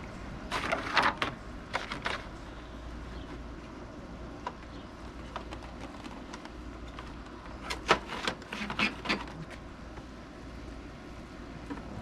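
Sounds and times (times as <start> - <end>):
plastic panels clicking and knocking: 4.4 - 9.6.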